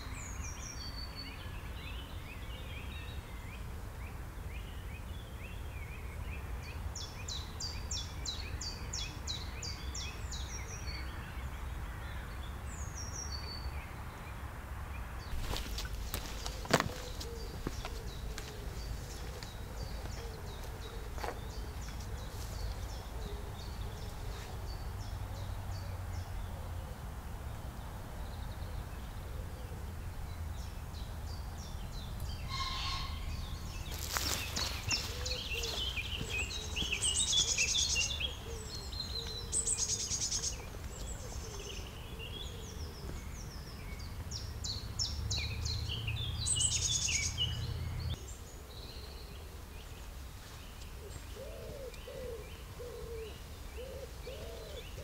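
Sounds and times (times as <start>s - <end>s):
songbirds chirping and trilling: 0.0s - 55.0s
pigeon cooing: 16.4s - 21.3s, 35.0s - 39.8s, 51.0s - 55.0s.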